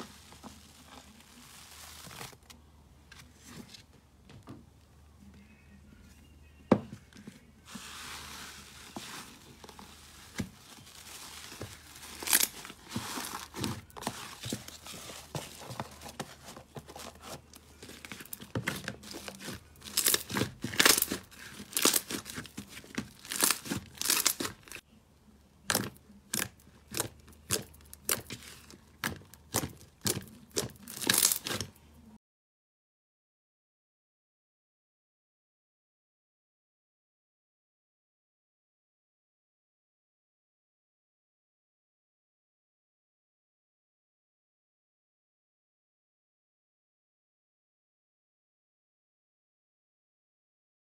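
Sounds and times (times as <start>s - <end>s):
slime crackling and popping: 18.1s - 24.8s, 25.7s - 31.7s.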